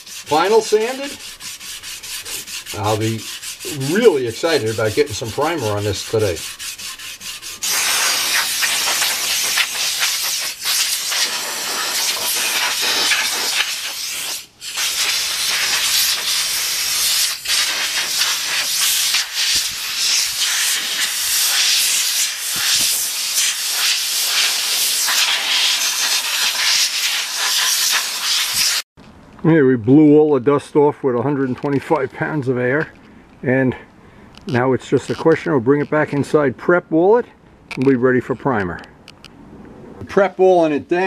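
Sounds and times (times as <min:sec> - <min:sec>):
air blow gun hissing: 0:07.5 - 0:28.9.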